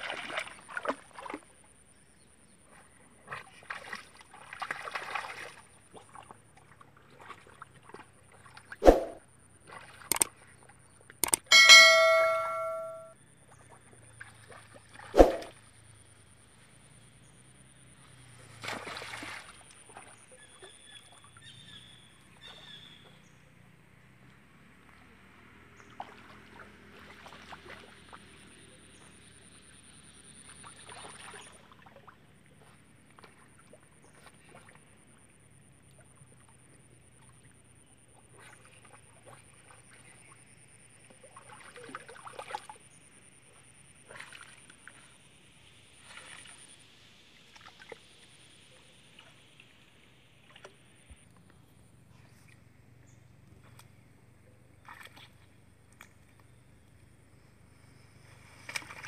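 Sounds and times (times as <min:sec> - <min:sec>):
animal swimming in river water: 0:00.0 - 0:59.0
high chirps: 0:11.2 - 0:13.1
faint high whine: 0:11.3 - 0:13.1.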